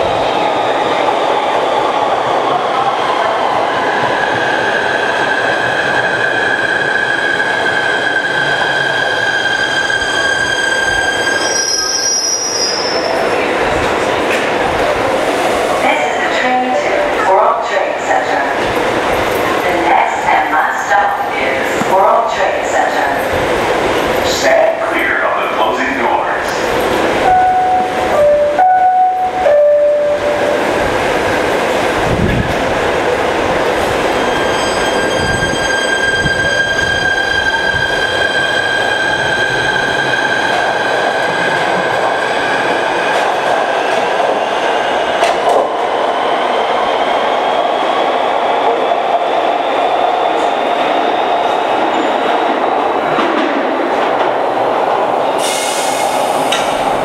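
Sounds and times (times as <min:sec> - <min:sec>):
train wheel rumble and clatter: 0:30.7 - 0:34.0.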